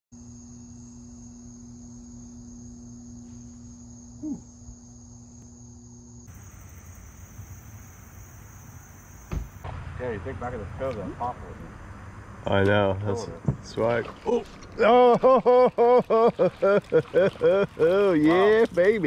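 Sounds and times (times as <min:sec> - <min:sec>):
high-pitched insect trill: 0:00.2 - 0:09.7
low hum: 0:06.2 - 0:16.0
dull thump: 0:09.2 - 0:09.9, 0:13.4 - 0:13.8.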